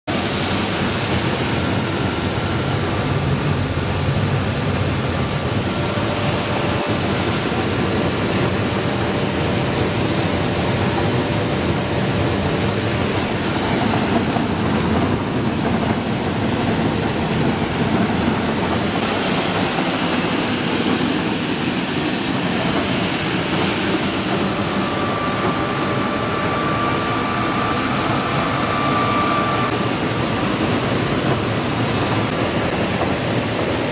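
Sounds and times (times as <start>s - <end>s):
faint whine: 17.1s - 32.4s.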